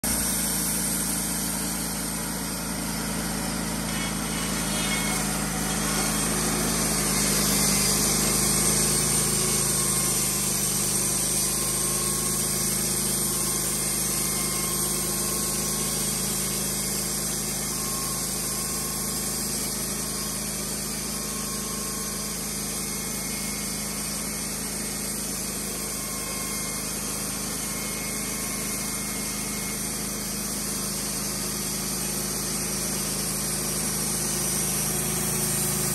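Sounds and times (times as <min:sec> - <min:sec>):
bandsaw mill engine under load: 0:00.0 - 0:35.9
band blade sawing through log: 0:03.3 - 0:18.1, 0:33.0 - 0:35.9.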